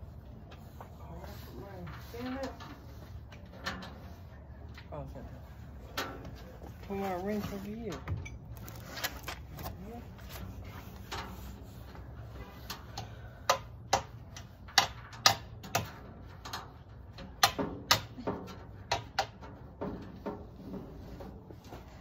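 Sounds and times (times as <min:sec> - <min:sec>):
tools and parts clicking and knocking: 0:12.6 - 0:20.9.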